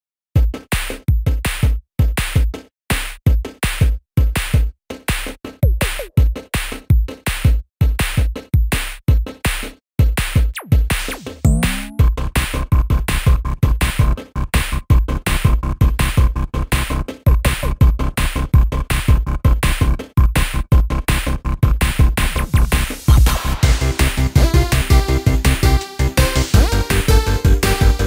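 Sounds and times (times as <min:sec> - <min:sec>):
electronic music with drum-machine beat: 0:03.4 - 0:09.4, 0:10.3 - 0:12.1, 0:15.4 - 0:28.0
synth gliding in pitch: 0:11.5 - 0:12.1.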